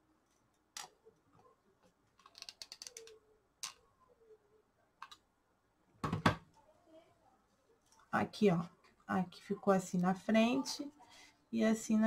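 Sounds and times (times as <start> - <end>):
small craft pieces clicking: 2.2 - 3.8.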